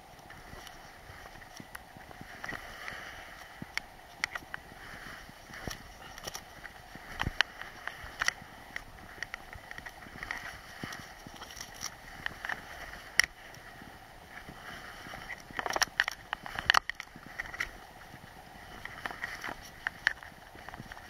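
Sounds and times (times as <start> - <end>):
skis scraping over snow: 0.0 - 21.0.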